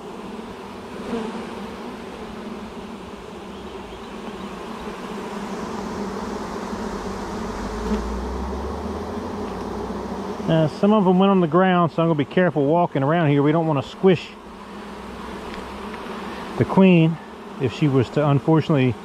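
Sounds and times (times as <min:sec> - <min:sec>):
honeybees buzzing: 0:00.0 - 0:19.0
brief low rumble: 0:07.4 - 0:09.8.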